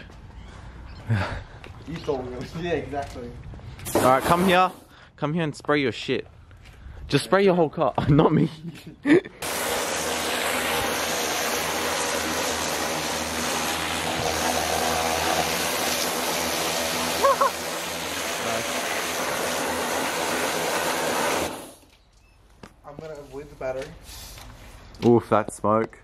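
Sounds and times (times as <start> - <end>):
pressure washer jet hissing: 3.8 - 4.9, 9.4 - 21.9
low motor hum: 9.4 - 21.6.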